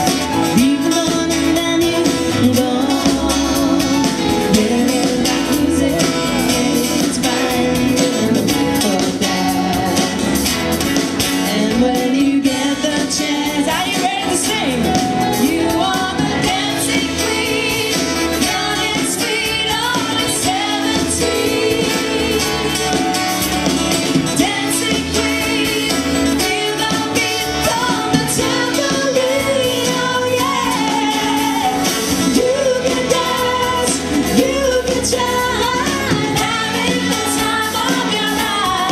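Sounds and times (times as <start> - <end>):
woman singing: 0.0 - 10.5, 11.3 - 38.9
acoustic guitar: 0.0 - 38.9
keyboard: 0.0 - 38.9
pop band playing: 0.0 - 38.9.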